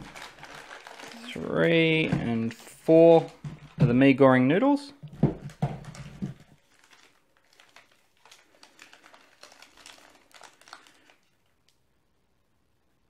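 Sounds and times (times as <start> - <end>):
wrapper crinkling: 0.0 - 2.5, 5.1 - 11.8.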